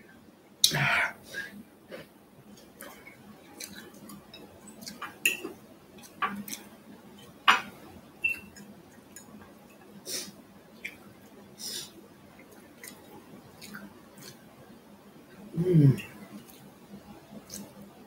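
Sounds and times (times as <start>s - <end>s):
metal fork clinking on glass plate: 4.3s - 5.5s.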